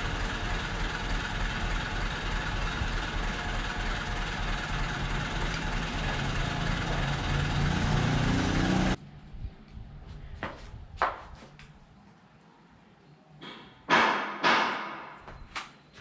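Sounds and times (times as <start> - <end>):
mechanical engine-like rumble: 0.0 - 10.0.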